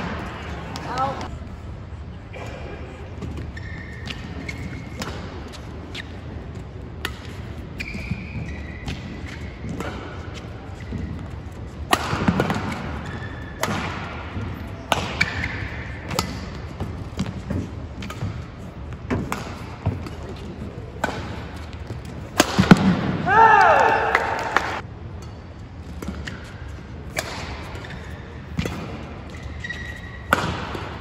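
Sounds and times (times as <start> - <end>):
shoe squeaks on court: 3.3 - 6.2, 7.5 - 9.7, 27.7 - 30.4
racket hitting shuttlecock: 4.0 - 6.2, 7.0 - 31.0.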